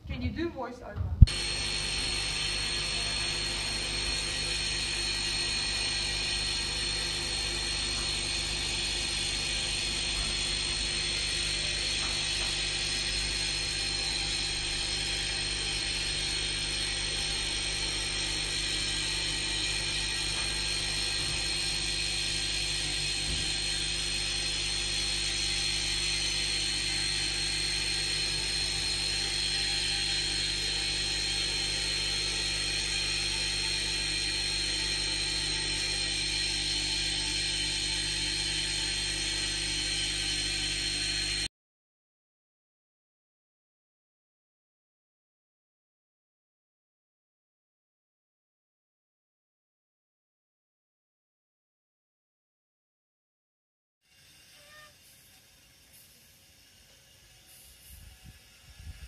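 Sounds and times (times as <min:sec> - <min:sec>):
electric drive whining: 0:00.0 - 0:41.5, 0:54.2 - 0:59.0.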